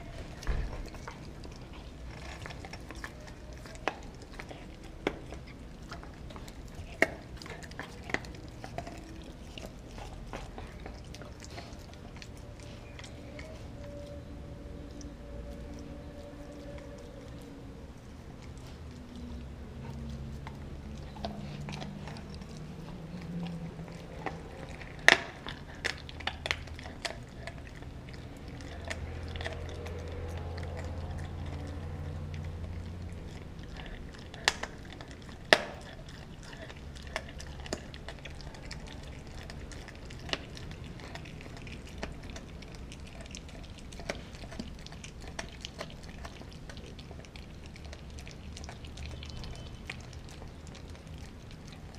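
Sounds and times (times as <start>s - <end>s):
dog chewing bone: 0.0s - 51.9s
low steady hum: 0.0s - 51.9s.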